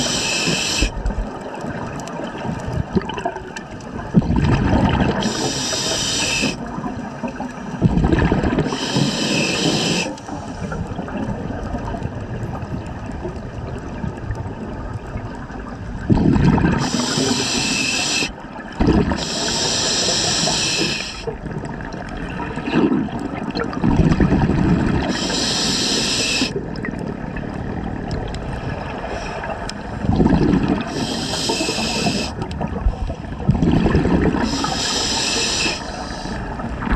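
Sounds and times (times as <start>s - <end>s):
steady underwater hiss: 0.0s - 3.0s, 4.9s - 7.8s, 8.6s - 11.2s, 16.6s - 21.8s, 24.8s - 27.2s, 28.4s - 30.0s, 30.6s - 33.5s, 34.1s - 36.9s
exhaled bubbles underwater: 0.0s - 36.9s.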